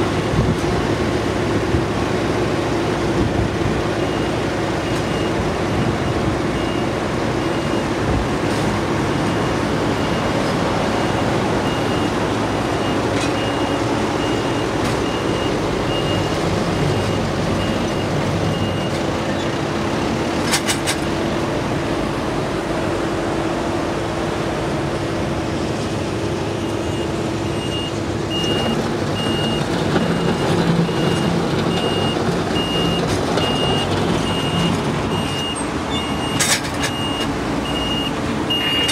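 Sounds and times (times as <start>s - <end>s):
heavy diesel machinery running: 0.0s - 38.9s
backup alarm beeping: 9.3s - 19.0s, 26.6s - 38.9s.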